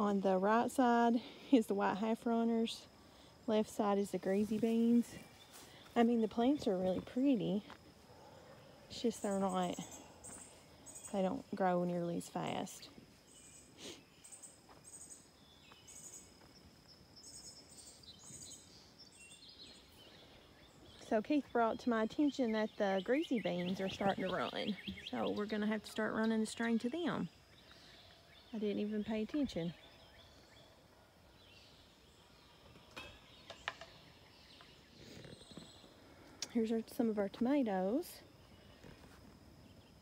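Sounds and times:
small birds and insects chirping: 0.0s - 40.0s.

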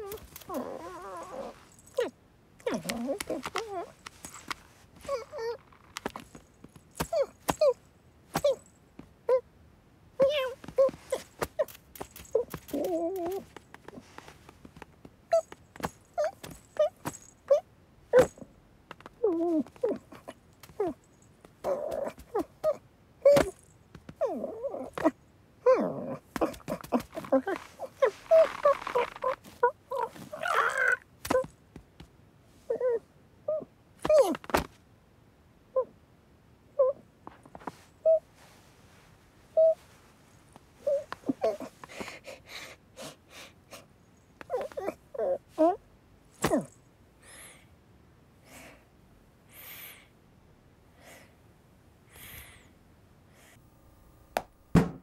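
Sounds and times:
rustling and scrabbling in fabric: 0.0s - 9.1s, 10.2s - 17.4s, 26.2s - 32.2s.

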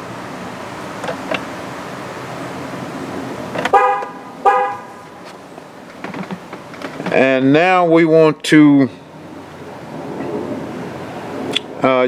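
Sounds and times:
truck horn chirping: 3.7s - 5.2s.

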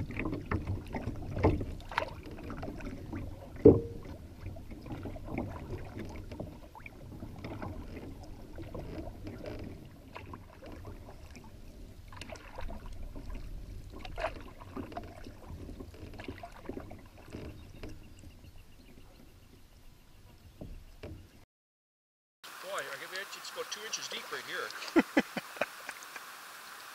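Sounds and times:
paddle splashing water: 0.0s - 21.4s, 22.5s - 26.9s
water lapping against hull: 0.0s - 21.4s.

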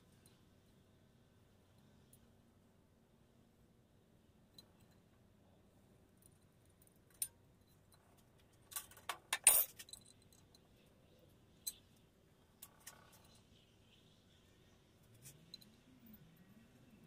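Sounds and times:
steel parts clinking: 8.7s - 10.6s.

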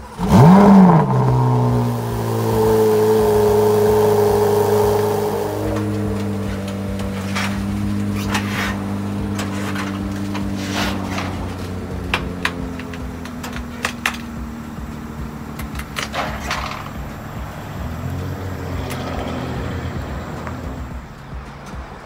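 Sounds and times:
car engine hum: 0.0s - 22.0s.

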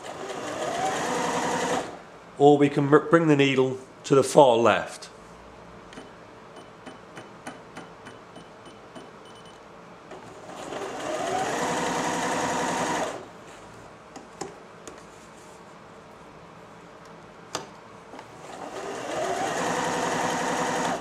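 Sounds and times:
electric sewing machine sewing: 0.0s - 2.0s, 10.1s - 13.3s, 18.2s - 21.0s.

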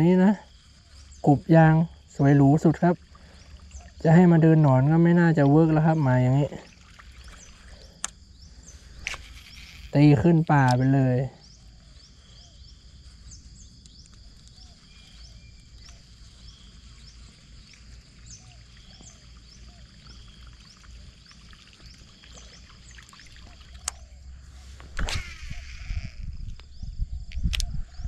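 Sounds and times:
high insect hum: 0.0s - 28.0s
small birds chirping: 0.0s - 28.0s
sharp click: 24.8s - 25.9s, 27.3s - 27.7s.

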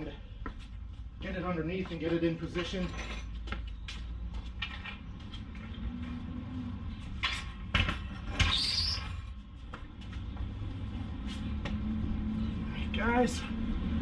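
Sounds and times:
high squeak: 8.4s - 9.2s.

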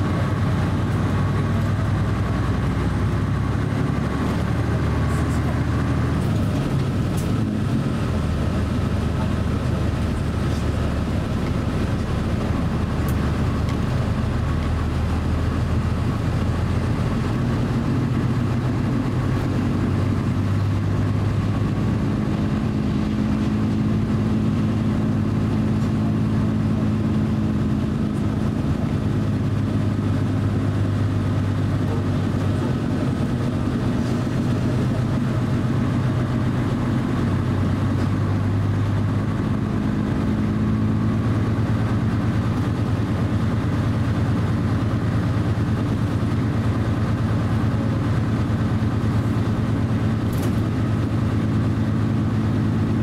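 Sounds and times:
turboprop engine drone: 0.0s - 53.0s.

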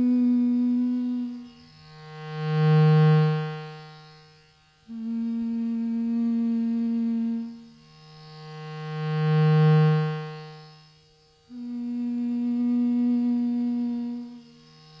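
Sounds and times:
loudspeaker feedback drone: 4.9s - 7.4s.

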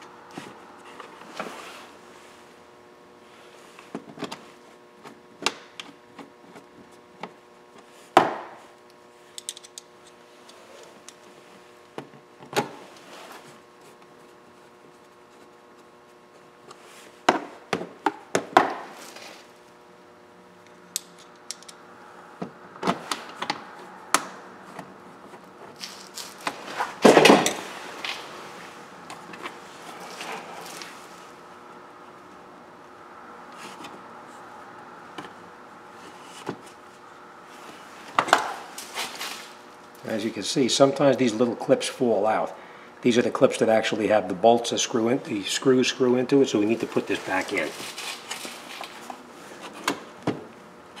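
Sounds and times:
faint steady hum: 0.0s - 51.0s.

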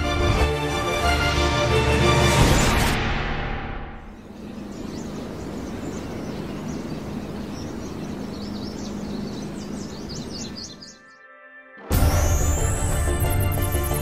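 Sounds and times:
steady background noise: 4.0s - 10.8s
small birds chirping: 4.1s - 11.2s.

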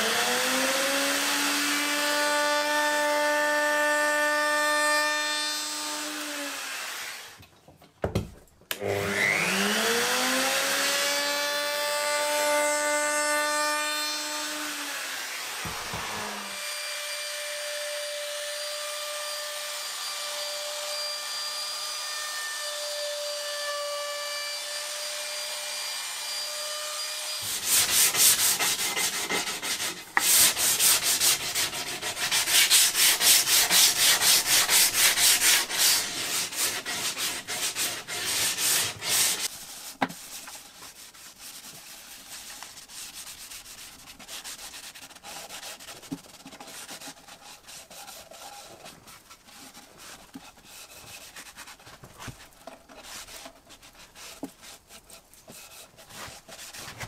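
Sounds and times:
sanding block rubbing wood: 27.2s - 57.0s
cloth rubbing on wood: 27.4s - 57.0s.

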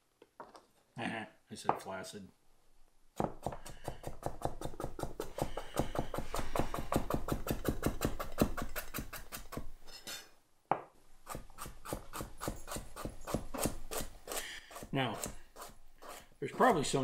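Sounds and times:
knife chopping on cutting board: 3.2s - 9.7s.

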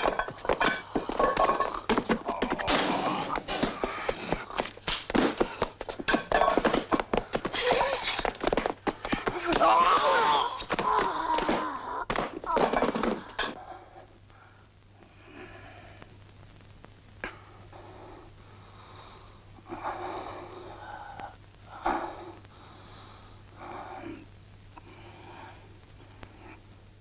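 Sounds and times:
man breathing heavily: 0.0s - 9.4s, 17.3s - 26.7s.

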